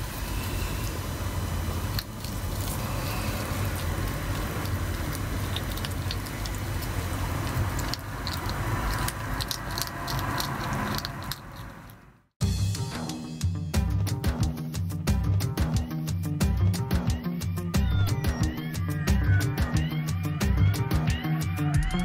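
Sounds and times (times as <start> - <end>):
animals crunching pellet food: 1.8 - 12.0.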